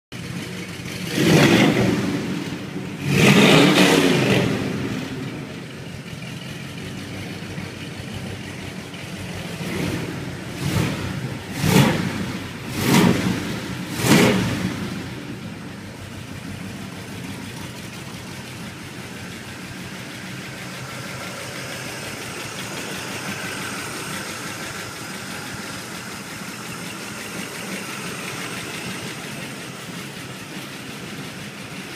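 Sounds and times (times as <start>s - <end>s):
car engine revving and idling: 0.2s - 31.9s.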